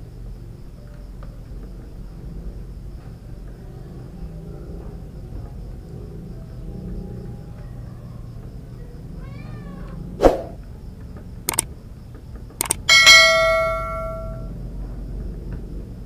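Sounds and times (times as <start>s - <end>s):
cat meowing: 9.2s - 10.0s
mouse click sound effects: 12.6s - 12.9s
notification bell ding: 12.6s - 14.5s.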